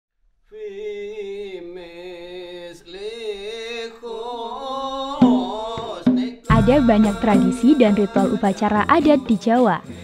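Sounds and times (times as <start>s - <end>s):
person chanting: 4.1s - 10.0s.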